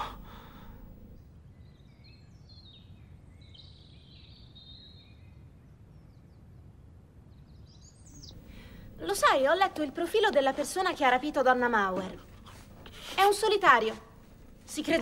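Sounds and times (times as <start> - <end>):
low steady hum: 0.0 - 2.5, 5.6 - 15.0
birds chirping: 0.0 - 15.0.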